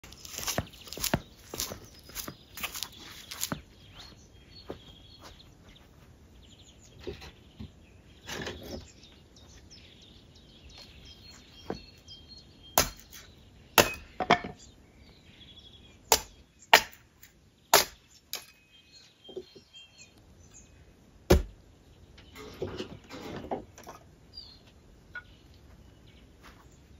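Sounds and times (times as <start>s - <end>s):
hatchet chopping wood: 12.8s - 13.2s, 13.8s - 14.5s, 16.1s - 17.1s, 17.7s - 18.5s, 21.3s - 21.6s.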